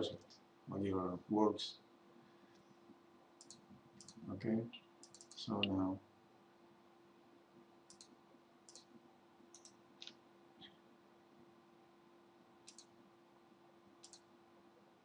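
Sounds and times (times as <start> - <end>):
low steady hum: 0.0 - 15.0
computer mouse clicks: 3.4 - 4.2, 5.0 - 5.8, 7.9 - 8.9, 9.5 - 10.8, 12.6 - 12.9, 14.0 - 14.3.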